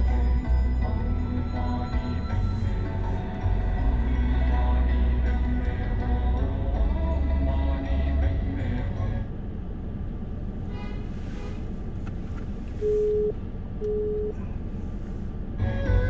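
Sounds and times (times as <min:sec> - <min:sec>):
car cabin road noise: 0:08.6 - 0:16.0
short electronic beeps: 0:12.8 - 0:14.4.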